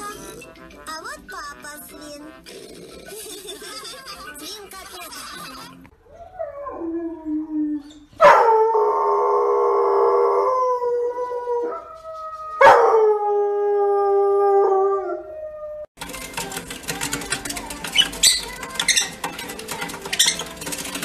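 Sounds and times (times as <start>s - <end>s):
dog howling: 6.0s - 15.9s.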